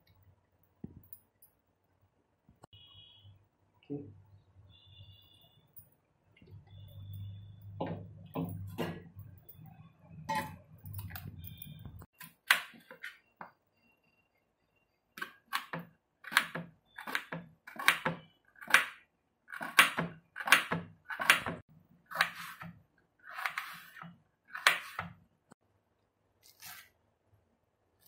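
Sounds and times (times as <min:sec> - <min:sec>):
knife chopping onion: 0:15.2 - 0:25.2.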